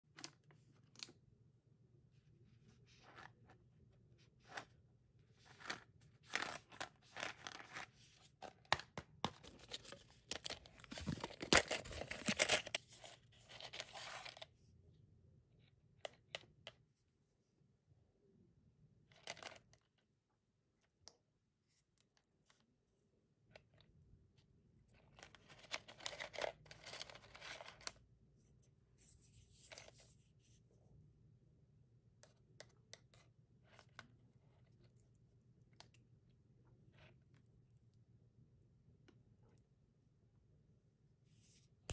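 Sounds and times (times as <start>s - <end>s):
plastic cup rustling: 5.4s - 14.4s.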